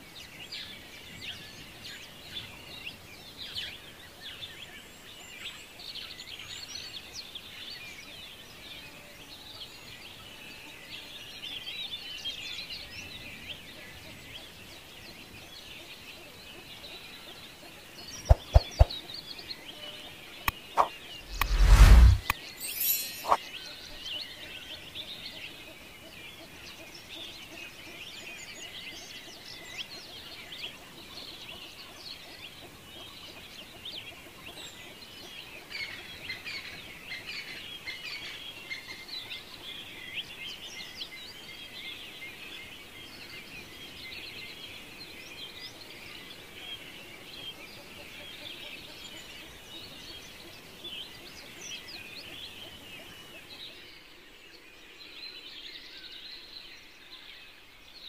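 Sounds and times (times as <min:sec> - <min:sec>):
small birds chirping: 0:13.9 - 0:24.4.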